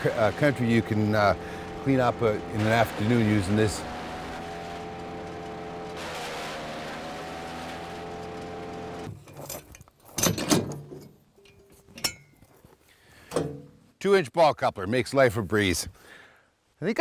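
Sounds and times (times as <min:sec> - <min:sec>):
wood chipper engine running: 0:00.0 - 0:09.1
metal clunks and clicks of hitch: 0:09.1 - 0:12.4, 0:13.2 - 0:13.8.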